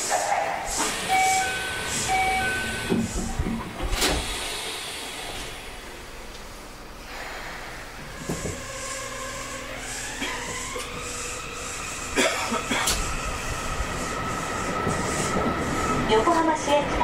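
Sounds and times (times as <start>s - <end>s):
train clunks and click: 0.0s - 5.6s, 8.0s - 8.6s, 12.2s - 13.1s, 14.4s - 17.0s
train inverter whine rising: 0.0s - 17.0s.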